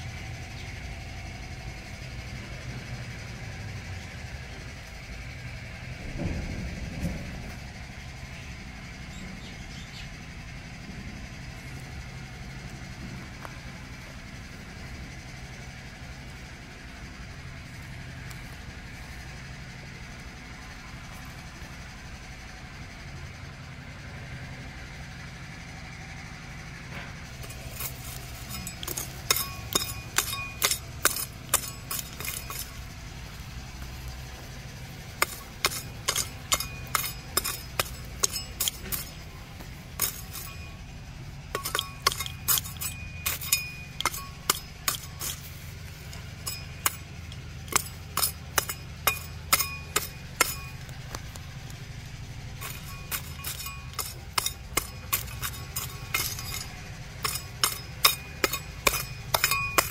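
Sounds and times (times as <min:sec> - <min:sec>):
hoe blade chopping soil: 0:27.4 - 0:34.2, 0:35.0 - 0:40.8, 0:41.5 - 0:51.4, 0:52.6 - 0:59.9.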